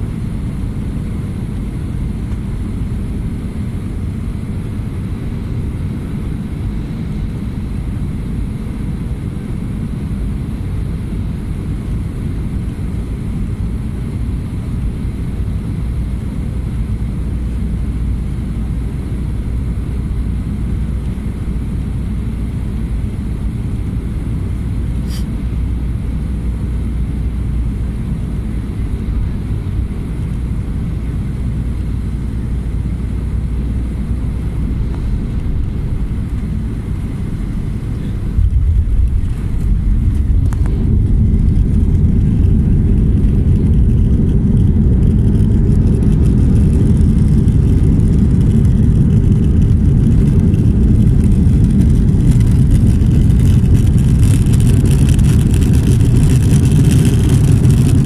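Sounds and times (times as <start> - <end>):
airliner cabin engine rumble: 0.0 - 58.0.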